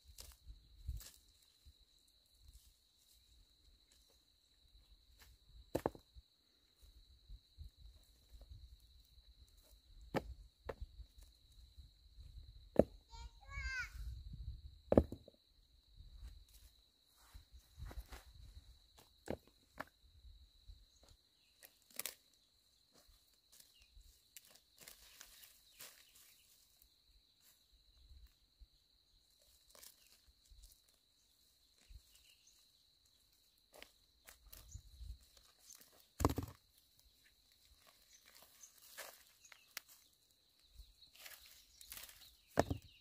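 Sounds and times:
twig snapping: 0:21.9 - 0:22.2
dry leaves rustling underfoot: 0:23.5 - 0:26.7, 0:29.4 - 0:31.0, 0:37.5 - 0:40.4, 0:41.1 - 0:42.4.

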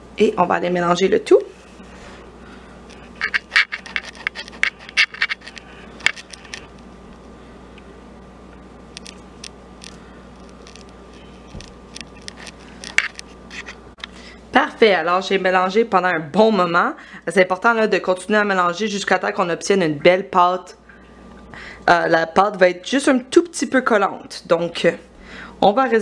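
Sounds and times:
spatula scraping glass bowl: 0:03.0 - 0:06.5.

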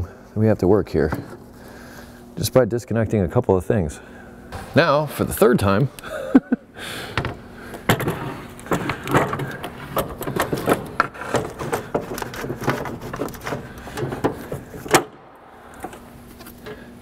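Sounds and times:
plastic scraping and rattling: 0:07.9 - 0:15.2.

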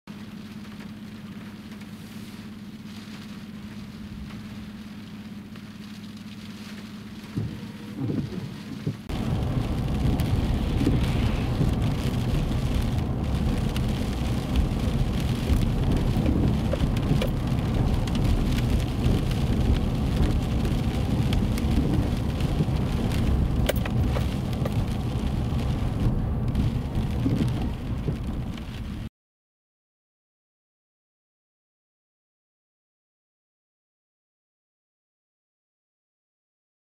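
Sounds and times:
heavy rain rushing: 0:00.1 - 0:29.1
raindrop ticks: 0:00.1 - 0:29.1
low rumble: 0:00.3 - 0:29.1
strong wind: 0:07.4 - 0:29.1.

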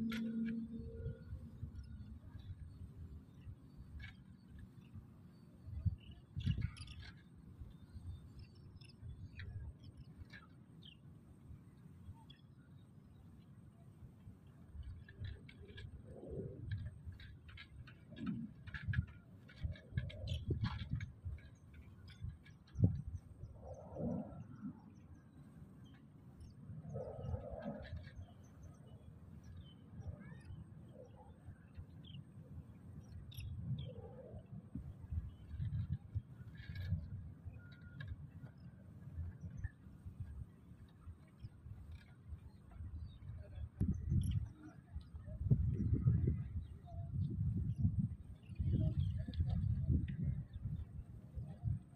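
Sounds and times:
wind rumble on microphone: 0:00.0 - 0:51.9
faint bird chirps: 0:14.7 - 0:51.8.

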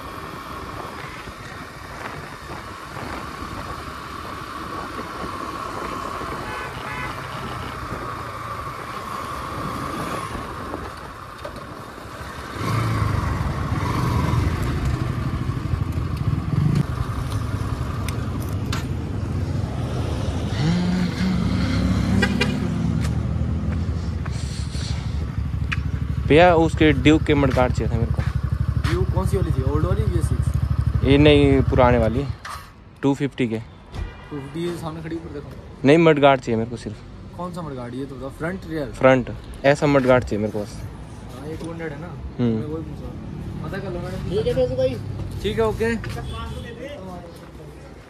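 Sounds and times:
road and wind noise: 0:00.0 - 0:48.0
motorcycle engine running: 0:25.0 - 0:32.1.

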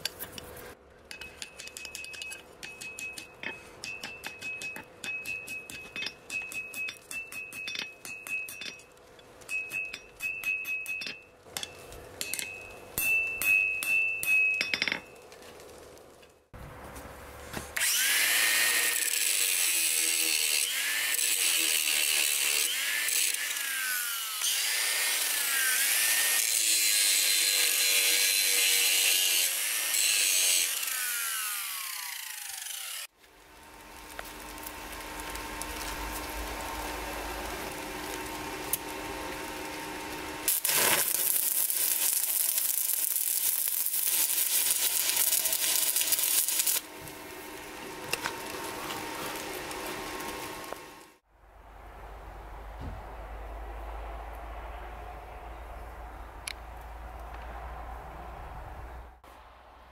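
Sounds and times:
angle grinder grinding steel: 0:17.8 - 0:33.1, 0:34.2 - 0:46.9
arc welder crackling hiss: 0:33.2 - 0:51.2.

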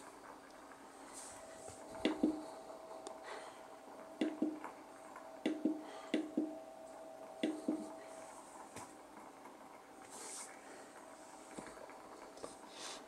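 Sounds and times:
humidifier water glugging: 0:00.0 - 0:10.0
faint steady hum: 0:00.0 - 0:13.0.

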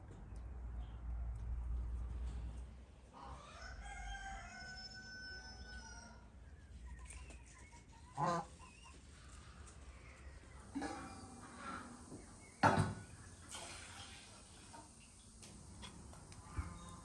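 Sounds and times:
rooster crowing: 0:03.4 - 0:06.3.

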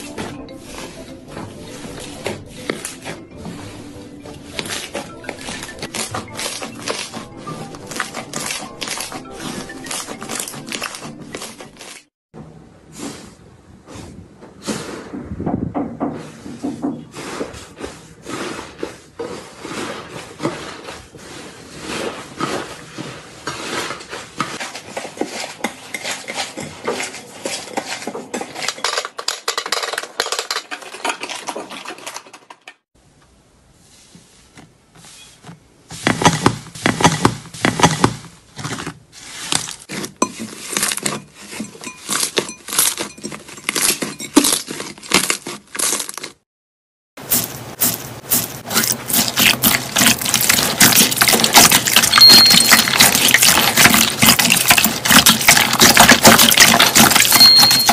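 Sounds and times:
slime crackling and popping: 0:04.5 - 0:12.0, 0:47.2 - 0:57.9.

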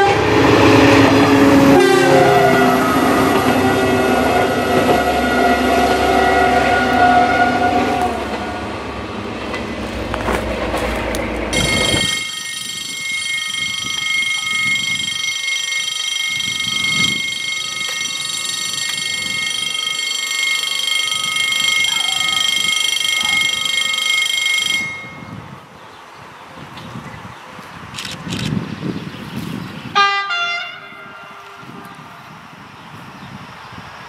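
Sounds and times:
train rumbling past: 0:00.0 - 0:25.7
high-pitched ringing warning alarm: 0:11.5 - 0:25.4.

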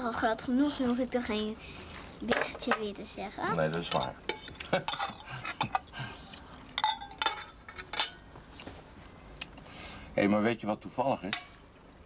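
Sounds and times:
cutlery clinking on plates: 0:03.8 - 0:05.9, 0:06.8 - 0:08.2.

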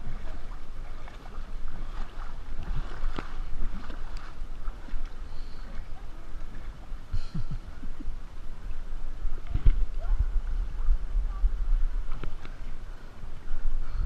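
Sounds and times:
small splashes and knocks: 0:00.0 - 0:05.2
water lapping against inflatable: 0:00.0 - 0:13.7
wind rumble on microphone: 0:00.0 - 0:14.0.

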